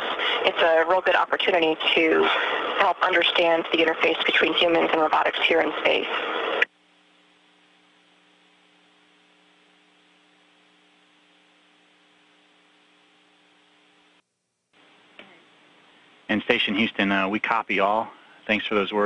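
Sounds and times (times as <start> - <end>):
faint electrical hum with hiss: 4.6 - 19.0.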